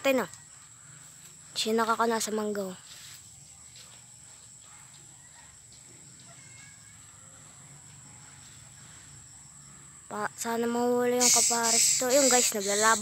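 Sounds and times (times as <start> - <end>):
faint bird chirps: 3.3 - 13.0
high-pitched insect drone: 5.9 - 13.0.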